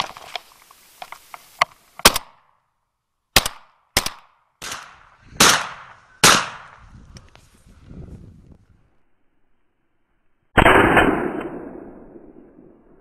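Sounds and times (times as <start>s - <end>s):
shotgun shots echoing: 3.4s - 6.8s, 10.6s - 12.8s.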